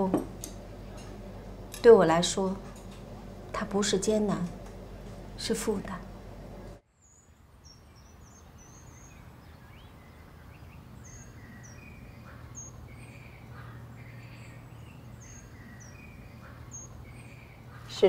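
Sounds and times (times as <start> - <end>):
low outdoor hum: 0.0 - 18.0
small birds chirping: 7.0 - 18.0.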